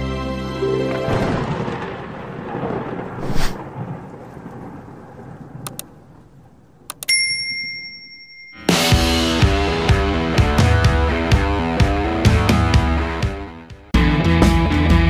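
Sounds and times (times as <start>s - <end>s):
thunder-like rumble and crackle: 1.1s - 6.9s
whoosh: 3.2s - 3.6s
mouse clicks: 5.7s - 5.9s, 6.9s - 7.1s
ringing bell chime: 7.0s - 9.2s.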